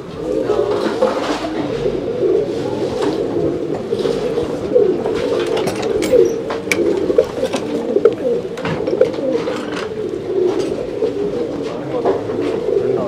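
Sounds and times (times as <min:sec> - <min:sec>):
pigeons cooing: 0:00.0 - 0:13.0
sharp clicks and knocks: 0:05.2 - 0:09.9.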